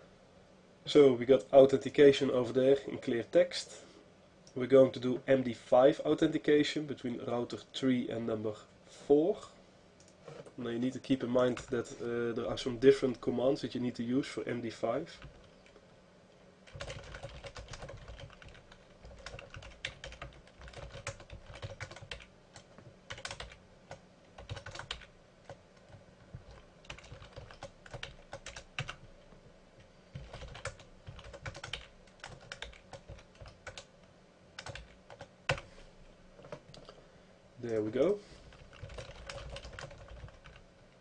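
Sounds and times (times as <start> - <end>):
typing on computer keyboard: 16.7 - 23.6, 24.4 - 29.1, 30.2 - 33.9, 34.6 - 35.6, 38.5 - 40.6.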